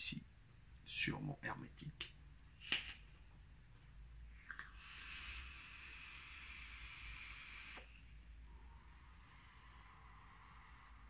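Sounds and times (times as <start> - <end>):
airy hiss of vaping draw: 4.5 - 11.0.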